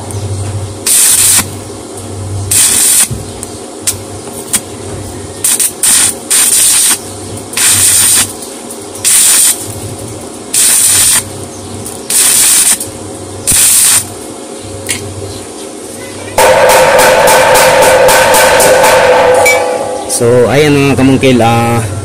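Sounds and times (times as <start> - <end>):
welding arc crackling and hissing: 0.8 - 15.2.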